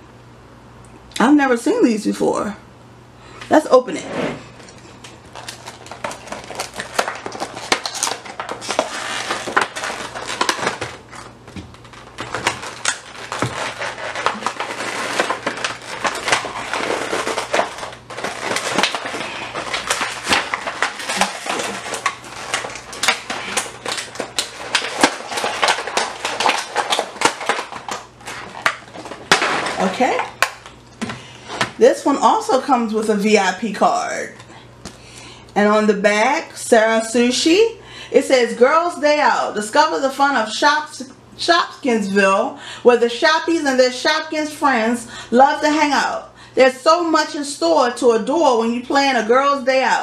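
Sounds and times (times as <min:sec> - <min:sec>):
plastic blister pack crackling: 0:04.6 - 0:31.8.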